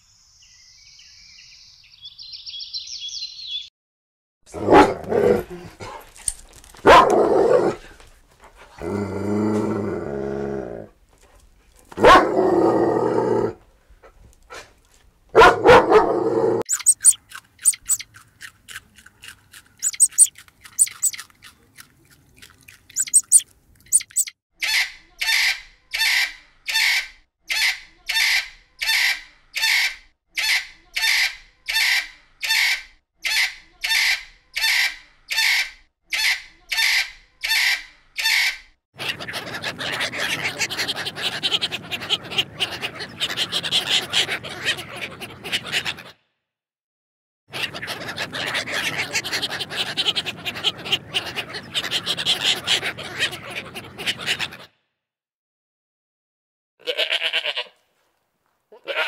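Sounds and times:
dogs barking: 4.6 - 6.0, 6.8 - 7.8, 11.9 - 12.4, 15.3 - 16.2
dog growling: 8.7 - 11.0
faint high squeaks: 16.7 - 18.0
harsh bird call: 16.7 - 18.0, 19.8 - 21.2, 23.0 - 24.3.

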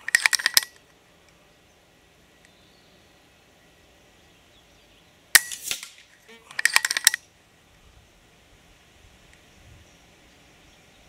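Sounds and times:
metallic clicks: 0.0 - 0.9, 5.4 - 7.3
air rifle shot: 5.4 - 6.1.

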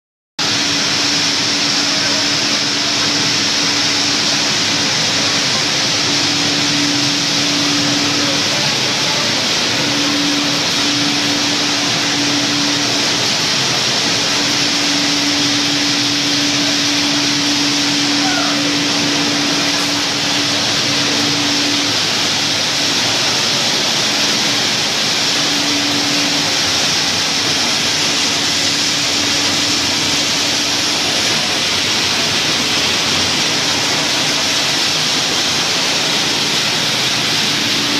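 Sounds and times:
low machine hum: 0.4 - 37.9
machinery rushing noise: 0.4 - 37.9.

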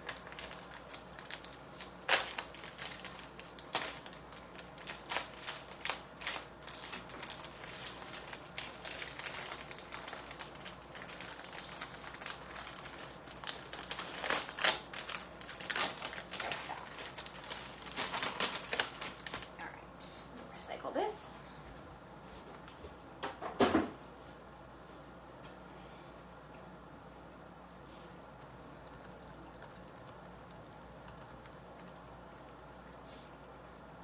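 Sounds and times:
plastic packaging crinkling: 0.0 - 19.6.

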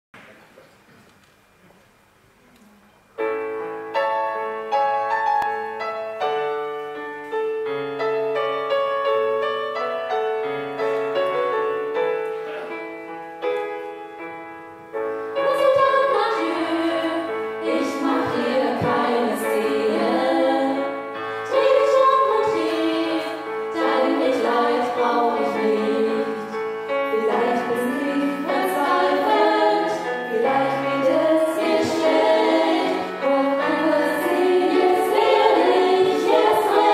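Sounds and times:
piano chords: 2.4 - 36.9
women singing in harmony: 15.4 - 36.9.

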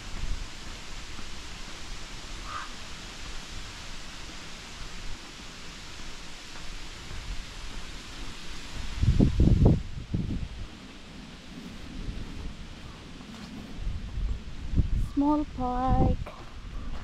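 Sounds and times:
steady hiss: 0.0 - 17.0.

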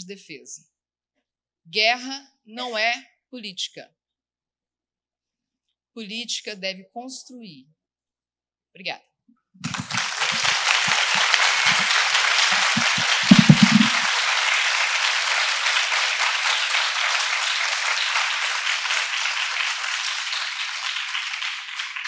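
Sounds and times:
audience applauding: 9.6 - 22.0
muffled low thumps: 12.5 - 14.0.

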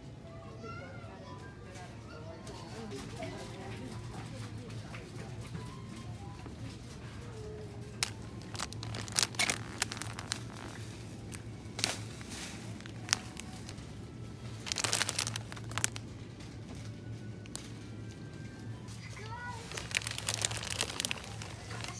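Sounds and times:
plastic packets crinkling: 6.7 - 21.9.

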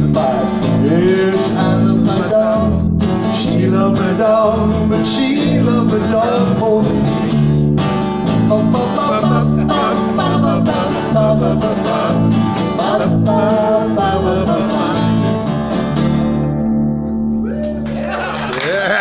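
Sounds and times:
people singing: 0.0 - 7.4, 8.2 - 16.0
acoustic guitar strumming: 0.0 - 17.8
electric bass notes: 0.0 - 18.5.

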